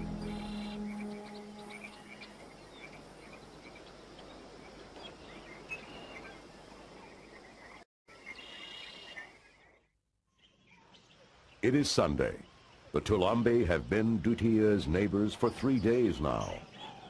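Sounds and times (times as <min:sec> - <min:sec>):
steady forest hiss: 0:00.0 - 0:09.7, 0:10.6 - 0:16.6
bird chirps: 0:07.1 - 0:11.6.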